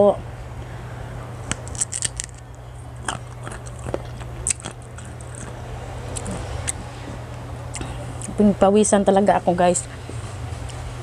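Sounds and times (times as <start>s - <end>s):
chewing crisp mango: 1.4s - 8.4s.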